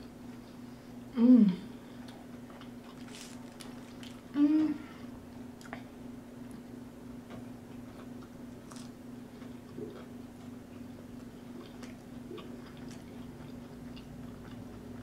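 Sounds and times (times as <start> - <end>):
person chewing crunchy food: 2.0 - 4.4, 7.3 - 15.0.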